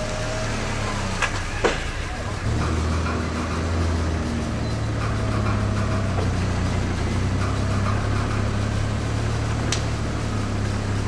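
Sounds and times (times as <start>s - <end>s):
engine idling: 0.0s - 11.0s
sharp click: 9.7s - 10.0s.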